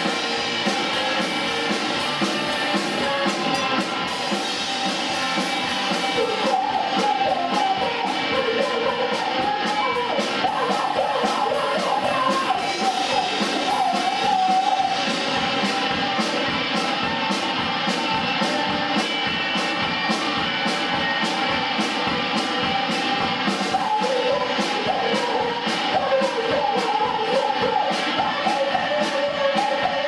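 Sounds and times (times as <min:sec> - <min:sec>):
drum kit fast beat: 0:00.0 - 0:30.0
electric guitars: 0:00.0 - 0:30.0
woman singing: 0:06.0 - 0:15.2, 0:23.6 - 0:30.0.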